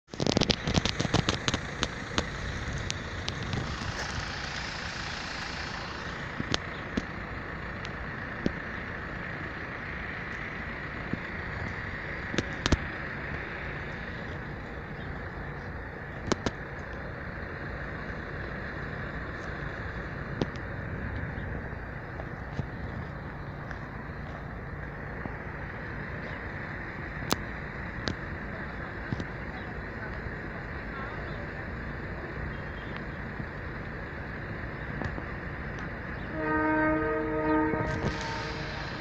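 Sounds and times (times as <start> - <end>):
road traffic noise: 0.0 - 39.0
sharp clicks: 0.1 - 4.2.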